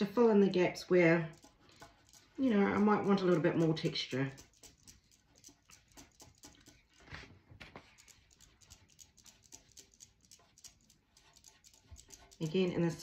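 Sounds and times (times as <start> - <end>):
cardboard tapping and scraping paint: 0.0 - 13.0.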